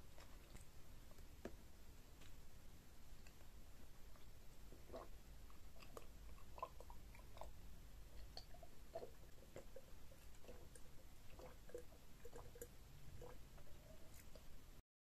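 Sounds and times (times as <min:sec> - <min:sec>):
person gulping and swallowing: 0:04.2 - 0:14.5.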